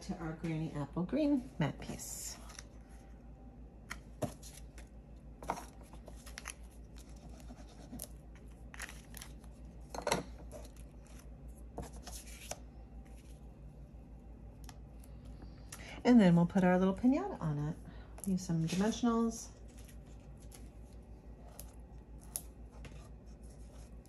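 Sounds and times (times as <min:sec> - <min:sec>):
cardstock rustling and scraping: 0:10.4 - 0:13.4.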